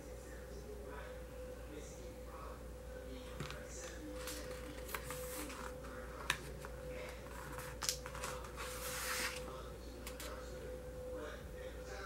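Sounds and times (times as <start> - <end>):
paper rustling: 3.4 - 9.5.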